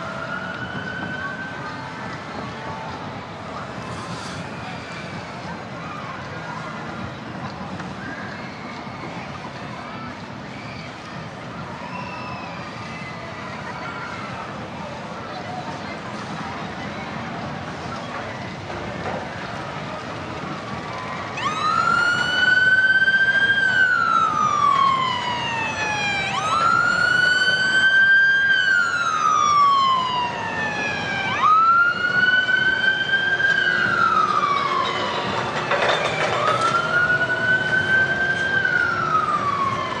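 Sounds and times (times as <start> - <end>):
emergency siren wailing: 0.0 - 3.8, 19.9 - 40.0.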